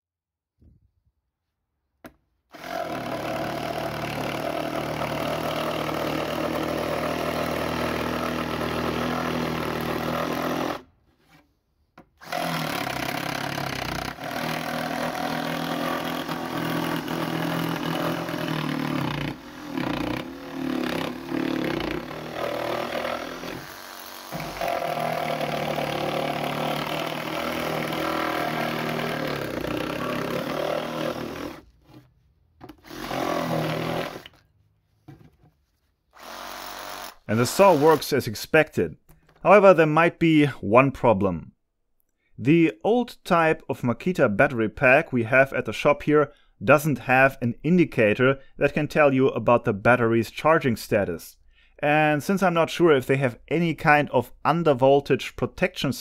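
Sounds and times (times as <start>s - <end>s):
reciprocating saw cutting wood: 2.5s - 11.4s, 12.2s - 32.1s, 32.7s - 34.4s, 36.1s - 38.2s.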